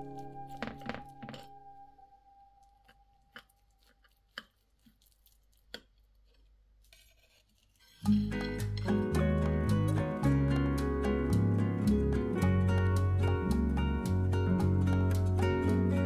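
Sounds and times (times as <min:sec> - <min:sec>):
knife crunching through crust: 0:03.3 - 0:08.7.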